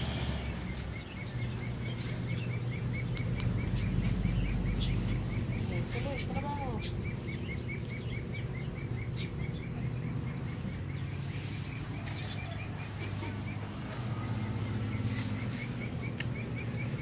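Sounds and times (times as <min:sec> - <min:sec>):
low outdoor hum: 0:00.0 - 0:17.0
puppy paws digging in soil: 0:01.8 - 0:07.4, 0:10.5 - 0:16.6.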